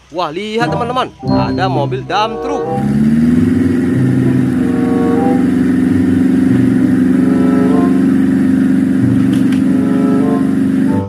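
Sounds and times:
truck engine running at high revs: 2.6s - 11.0s.

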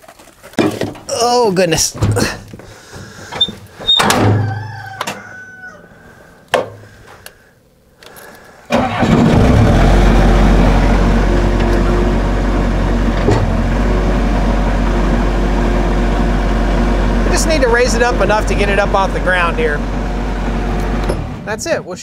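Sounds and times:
loader engine running: 8.7s - 21.6s.

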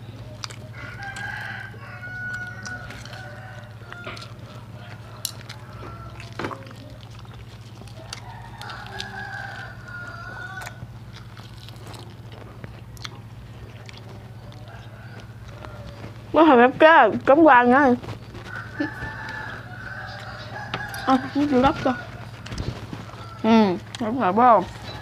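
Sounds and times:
rooster crowing: 0.6s - 7.0s, 7.8s - 11.4s, 14.1s - 16.3s, 18.4s - 23.7s, 24.5s - 25.0s.

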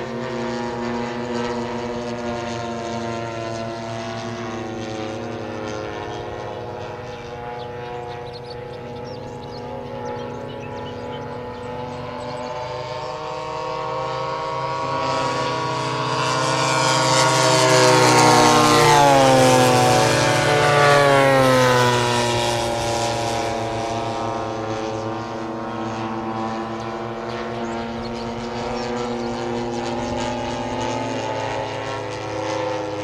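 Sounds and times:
model plane engine flying past: 0.0s - 33.0s.

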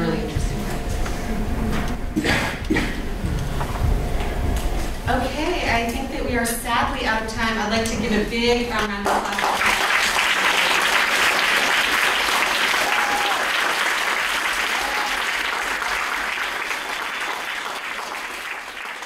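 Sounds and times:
audience applauding: 9.0s - 19.0s.

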